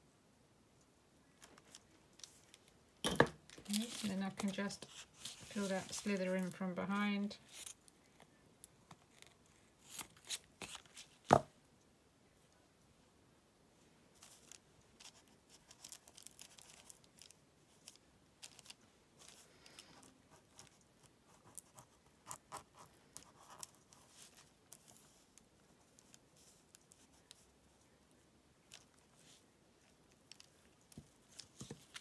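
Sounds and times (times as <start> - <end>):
paper rustling and crinkling: 3.6 - 6.7, 9.0 - 11.2, 14.2 - 20.8
light scratches: 3.6 - 6.8.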